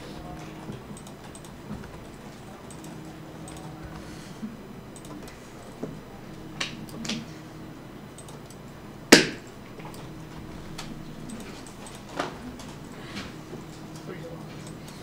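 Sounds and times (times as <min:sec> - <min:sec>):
computer input clicks and taps: 0:00.7 - 0:04.0, 0:08.2 - 0:10.1.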